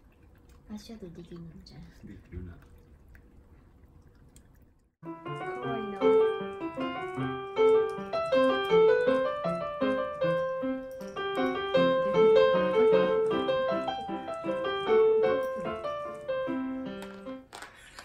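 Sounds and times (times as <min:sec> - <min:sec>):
piano music: 0:05.0 - 0:17.5.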